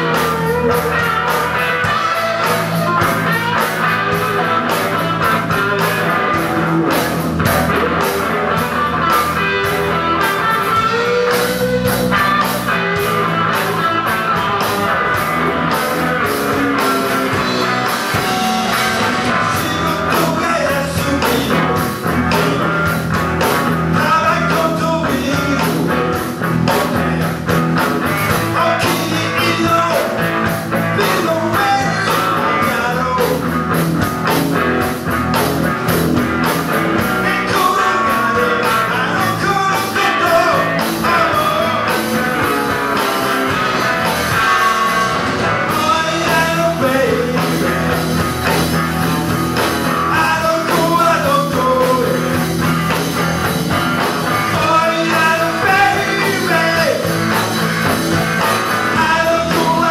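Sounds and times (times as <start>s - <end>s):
man singing: 0.0s - 33.8s, 36.9s - 42.8s, 43.8s - 48.6s, 49.6s - 53.4s, 54.2s - 59.9s
distorted electric guitars: 0.0s - 59.9s
drum kit: 0.0s - 59.9s.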